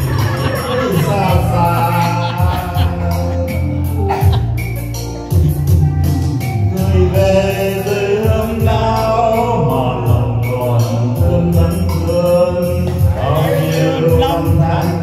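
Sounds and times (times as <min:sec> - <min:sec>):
drum beat: 0:00.0 - 0:03.4
heavy bass: 0:00.0 - 0:15.0
person singing over backing track: 0:00.0 - 0:15.0.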